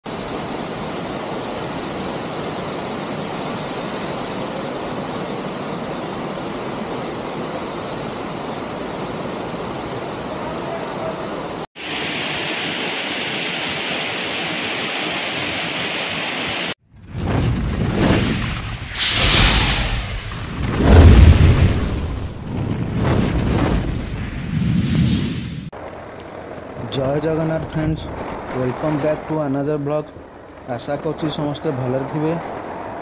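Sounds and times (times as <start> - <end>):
waterfall rushing into pool: 0.1 - 16.8.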